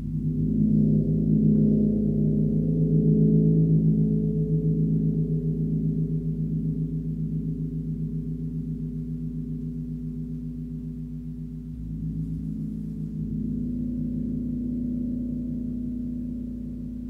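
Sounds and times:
large gong deep hum: 0.0 - 17.0.

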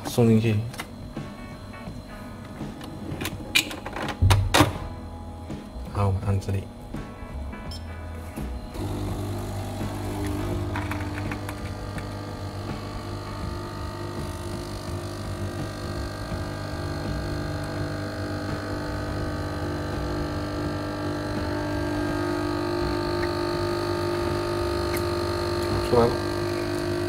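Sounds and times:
coffee machine pump buzzing: 8.3 - 27.0
coffee running into cup: 8.9 - 13.7.

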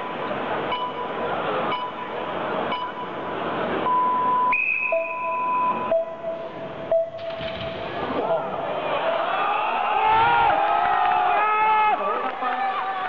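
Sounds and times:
steady electronic tones: 0.0 - 8.2
crowd noise: 0.0 - 13.0
electronic countdown beeps: 0.7 - 3.2, 3.8 - 7.4.

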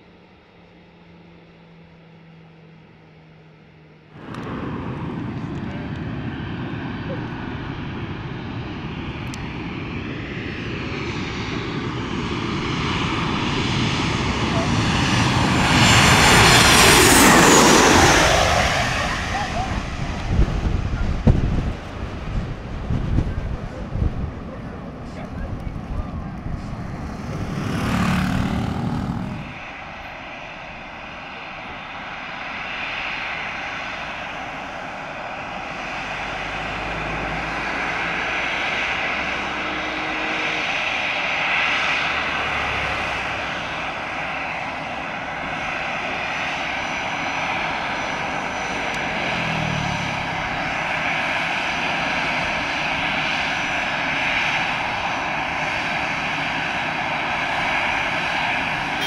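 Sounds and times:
airliner engines whining: 0.0 - 59.0
loud rush: 26.7 - 29.8.

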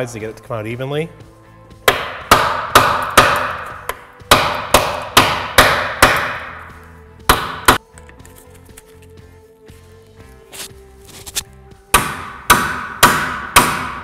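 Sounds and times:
hammer striking metal pry bar: 1.8 - 7.8, 11.9 - 14.0.

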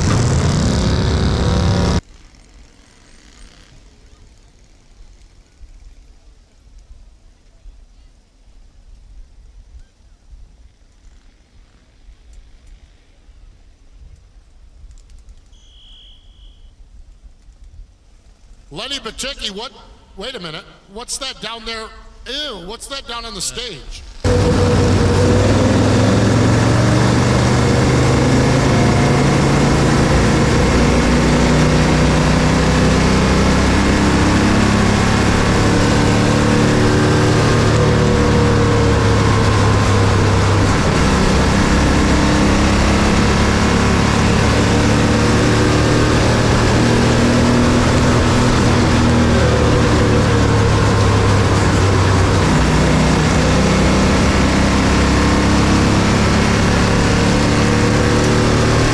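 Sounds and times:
race car engine at high revs: 0.0 - 2.0, 24.2 - 58.9.

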